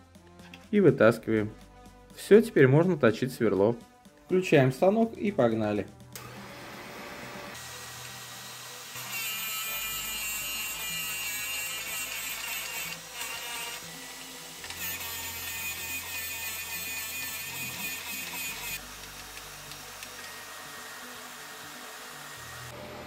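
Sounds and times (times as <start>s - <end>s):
sharpener motor humming: 6.2s - 22.8s
drill bit grinding against wheel: 8.9s - 13.9s, 14.6s - 18.8s.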